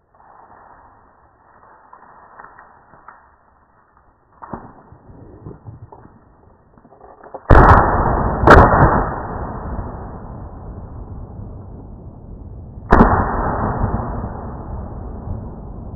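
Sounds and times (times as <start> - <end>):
shotgun shots with echo: 7.5 - 9.6, 12.9 - 14.4.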